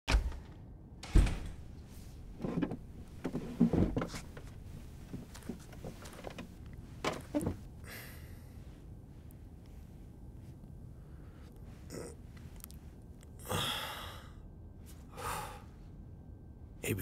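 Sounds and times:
chair scrapes knocks and creaks: 0:02.4 - 0:07.7.

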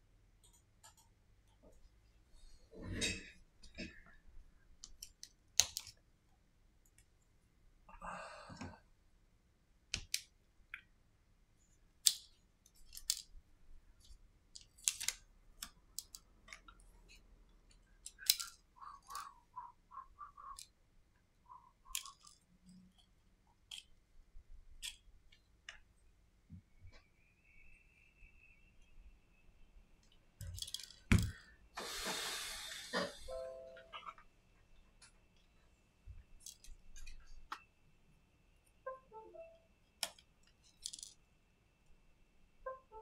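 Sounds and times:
small clicks of tools handled: 0:21.9 - 0:23.1, 0:23.7 - 0:23.9, 0:30.0 - 0:31.0, 0:36.4 - 0:37.6, 0:40.0 - 0:41.2.

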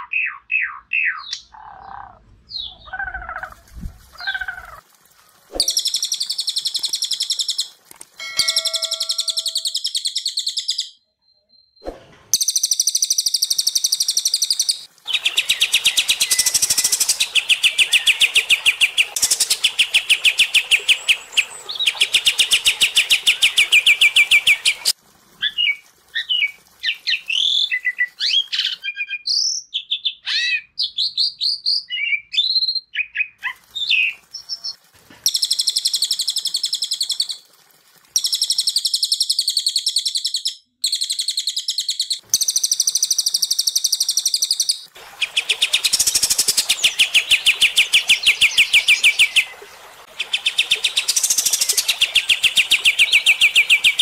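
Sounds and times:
fast bird trill: 0:05.6 - 0:11.0, 0:12.4 - 0:28.9, 0:50.2 - 0:54.0
whistled bird notes: 0:08.3 - 0:37.4.

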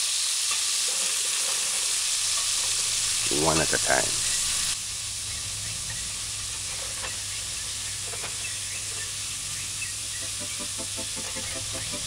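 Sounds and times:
chicken sizzling in a pan: 0:00.0 - 0:12.0.

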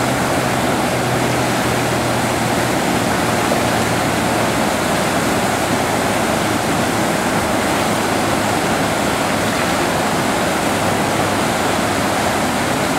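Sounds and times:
whitewater roaring: 0:00.0 - 0:12.9.

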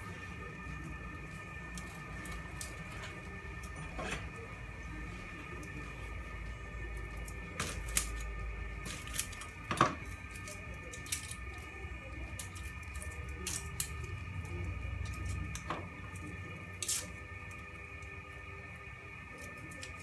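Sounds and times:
steady low hum: 0:00.0 - 0:20.0.

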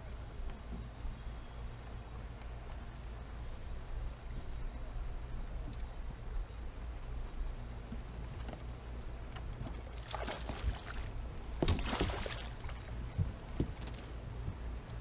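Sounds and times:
fish splashing at water surface: 0:10.0 - 0:12.8.

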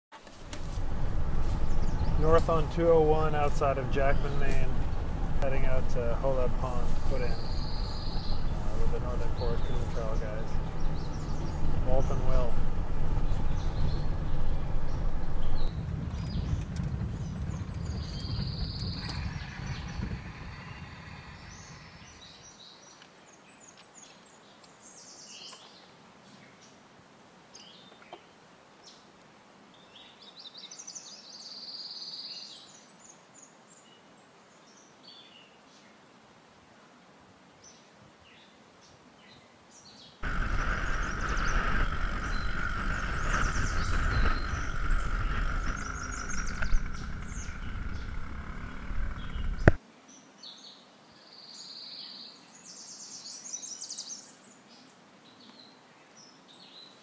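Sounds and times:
vehicle rumbling on gravel road: 0:00.2 - 0:22.4, 0:40.2 - 0:49.8
outboard motor running: 0:00.3 - 0:22.2, 0:40.2 - 0:49.8
birds chirping and whistling: 0:00.6 - 0:22.8, 0:40.2 - 0:49.8.

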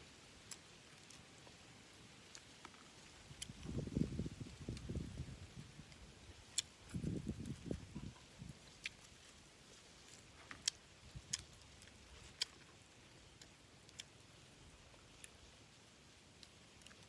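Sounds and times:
mouth clicks and smacks chewing: 0:10.1 - 0:14.2.

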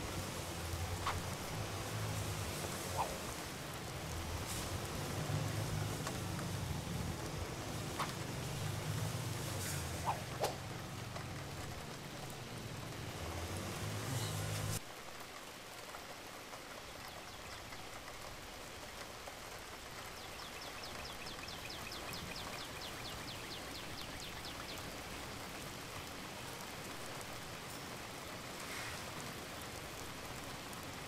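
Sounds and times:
rain-like hiss: 0:00.0 - 0:31.0.

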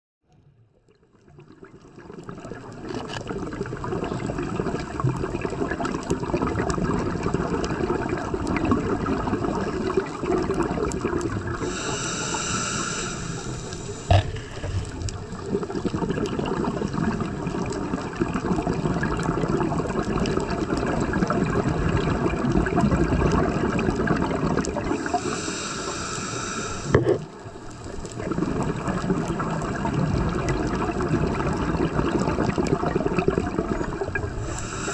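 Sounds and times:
underwater rush and bubbling: 0:00.5 - 0:34.9
regulator breath hiss: 0:11.6 - 0:15.1, 0:25.0 - 0:27.0, 0:34.3 - 0:34.9.

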